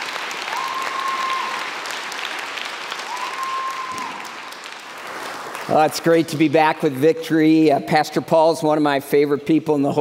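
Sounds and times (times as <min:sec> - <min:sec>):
congregation applauding: 0:00.0 - 0:07.0.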